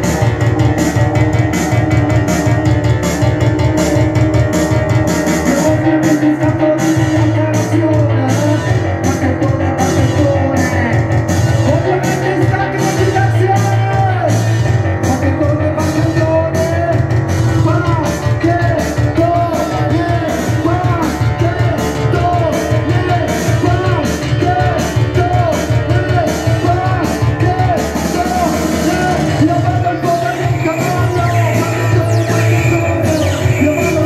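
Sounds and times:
driving drum beat: 0.0 - 34.0
pulsing bass line: 0.0 - 34.0
punk rock band playing: 0.0 - 34.0
singer through pa: 5.4 - 34.0.

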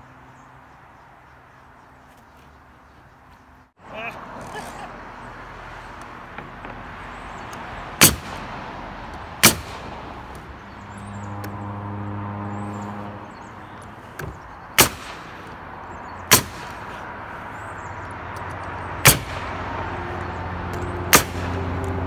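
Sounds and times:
nail gun shots: 8.0 - 8.4, 9.4 - 9.9, 14.8 - 15.4, 16.3 - 16.8, 19.0 - 19.5, 21.1 - 21.6.

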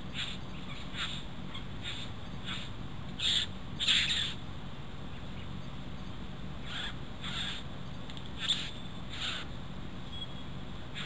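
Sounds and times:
bird harsh rasping calls: 0.0 - 4.4, 6.6 - 7.7, 8.4 - 9.6, 10.2 - 11.0.

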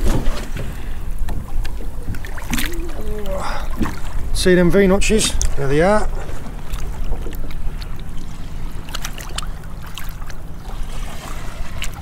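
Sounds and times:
water lapping: 0.0 - 12.0
boat engine idling: 0.5 - 12.0
small splashes: 1.6 - 4.4, 5.4 - 12.0.

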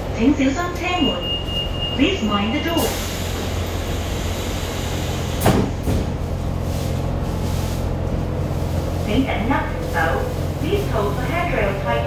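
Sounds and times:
light rail car hum: 0.0 - 12.0.

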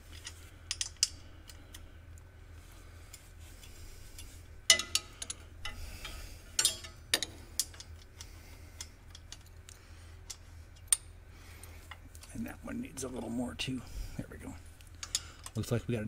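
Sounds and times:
faint low hum: 0.0 - 16.0
wrench clinking on metal: 4.7 - 7.9.

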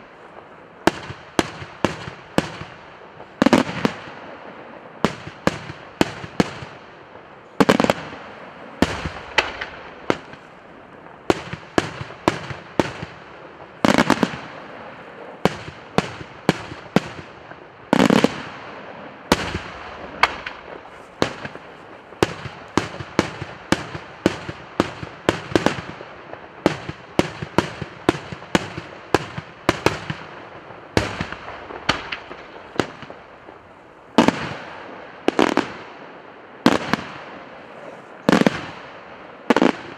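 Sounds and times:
fireworks bursting with sharp bangs: 0.0 - 39.9
heavy fireworks boom: 5.1 - 25.8, 28.1 - 35.7.

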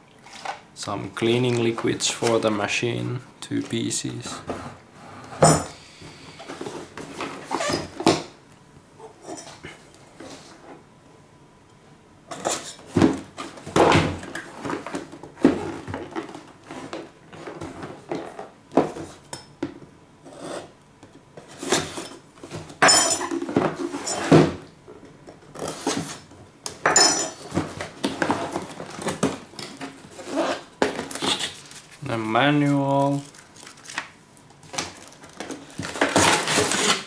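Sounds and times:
knife slitting tape and cardboard: 35.8 - 37.0.

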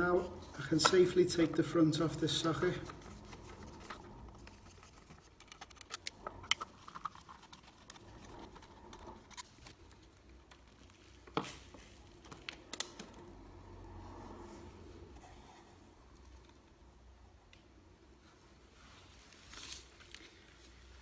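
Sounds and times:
screwdriver clicking and scraping: 4.4 - 9.9.

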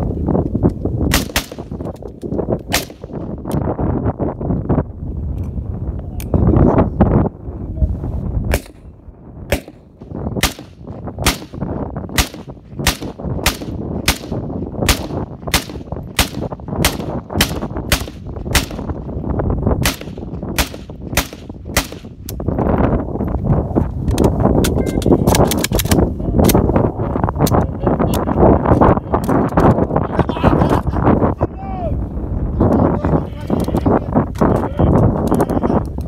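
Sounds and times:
low rumbling noise: 0.0 - 36.0
rifle single shots: 1.1 - 1.8, 2.7 - 3.2, 8.5 - 8.9, 9.5 - 11.6, 12.2 - 18.9, 19.8 - 22.1.

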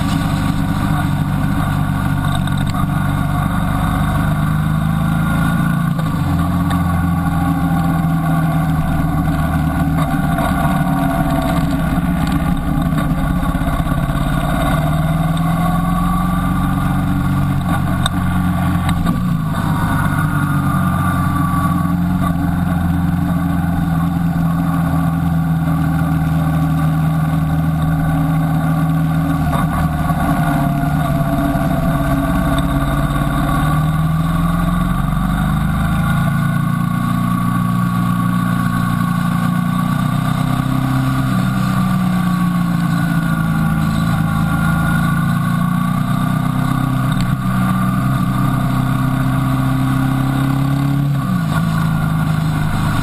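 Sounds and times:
motorcycle engine running: 0.0 - 53.0.

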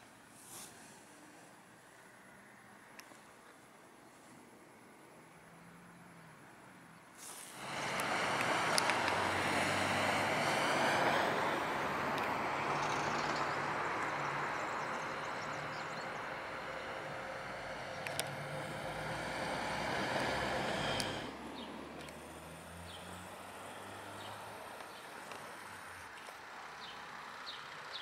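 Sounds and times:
road traffic engines: 0.0 - 28.0
sharp clicks: 7.9 - 9.3, 18.0 - 18.4.

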